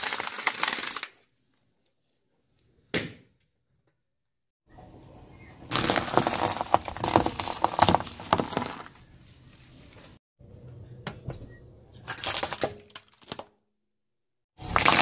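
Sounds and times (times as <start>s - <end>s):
car tyre crushing bread rolls: 5.6s - 9.2s, 14.6s - 15.0s.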